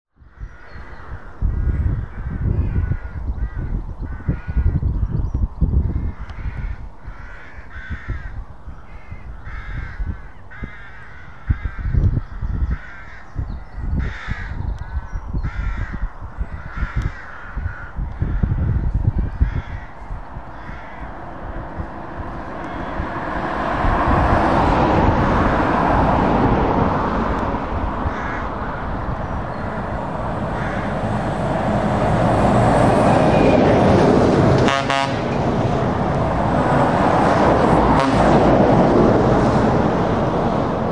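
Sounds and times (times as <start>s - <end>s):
bird cawing: 0.2s - 4.8s, 5.8s - 23.8s, 27.9s - 33.8s
low rumble: 14.6s - 40.9s
heavy trucks driving past: 19.8s - 40.9s.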